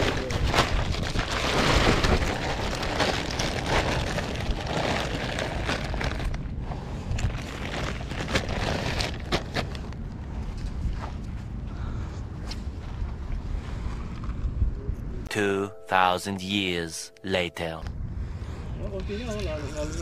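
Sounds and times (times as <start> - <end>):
wind rumble on microphone: 0.0 - 15.3
plastic bag crinkling: 0.4 - 6.4, 7.4 - 9.6.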